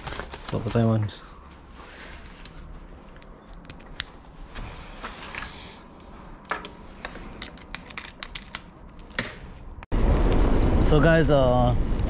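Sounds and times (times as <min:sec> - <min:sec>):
small objects clicking and clattering: 0:07.0 - 0:09.3.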